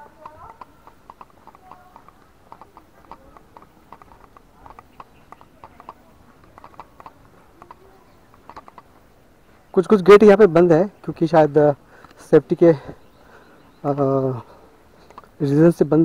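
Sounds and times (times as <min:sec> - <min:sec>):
footsteps on stone paving: 0:00.0 - 0:10.4.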